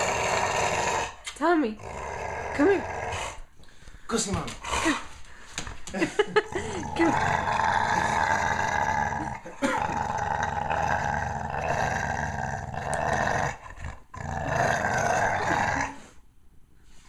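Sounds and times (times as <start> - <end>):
dog growling: 0.0 - 3.5, 6.3 - 16.2.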